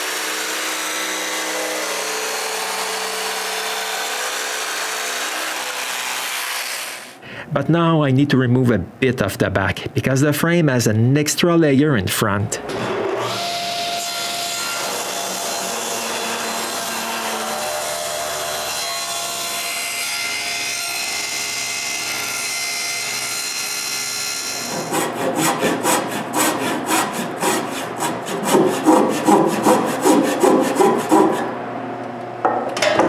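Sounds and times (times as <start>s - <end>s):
table saw cutting: 0.0s - 7.2s, 12.7s - 31.6s
scraping strokes on wood: 24.7s - 31.5s.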